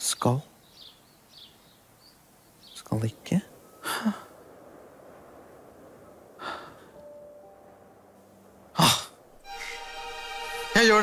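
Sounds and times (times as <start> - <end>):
person sighing: 3.8 - 4.3, 6.4 - 7.0, 8.8 - 9.8.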